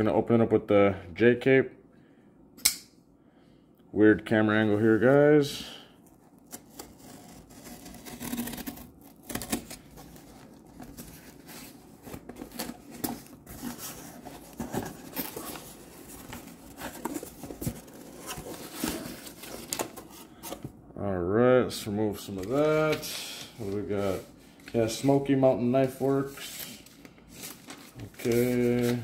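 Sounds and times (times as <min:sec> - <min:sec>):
knife slicing packing tape: 0:06.8 - 0:09.8.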